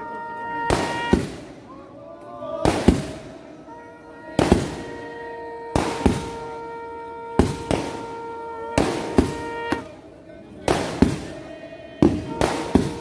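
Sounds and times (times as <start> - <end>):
drums beaten in paired strokes: 5.8 - 6.5, 7.3 - 9.9, 12.0 - 13.0.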